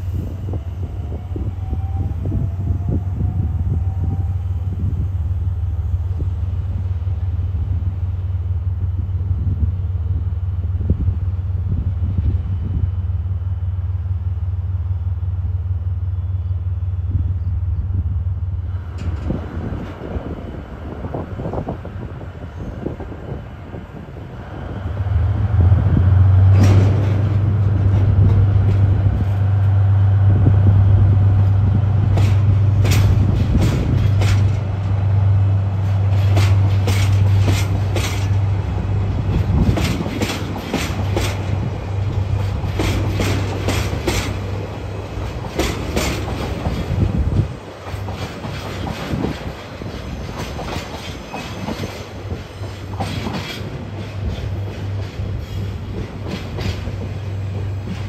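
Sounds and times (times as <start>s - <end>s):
freight train low drone: 0.0s - 58.0s
wheels clicking over rail joints: 32.0s - 58.0s.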